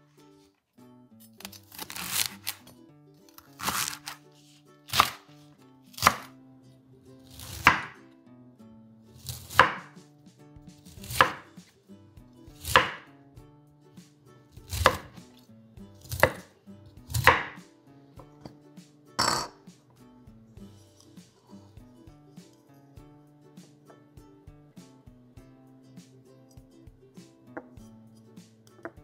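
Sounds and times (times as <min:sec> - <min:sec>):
knife chopping vegetables on board: 0:03.4 - 0:04.2, 0:04.9 - 0:05.3, 0:05.9 - 0:06.3, 0:07.2 - 0:08.0, 0:09.2 - 0:10.1, 0:10.7 - 0:11.7, 0:12.5 - 0:13.1, 0:14.5 - 0:15.4, 0:16.0 - 0:18.6.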